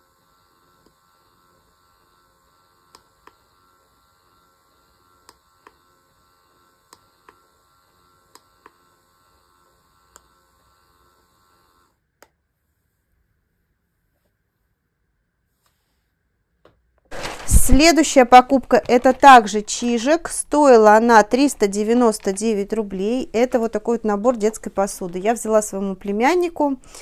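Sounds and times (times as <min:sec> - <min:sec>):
massager motor hum: 0:00.0 - 0:14.9, 0:17.7 - 0:27.0.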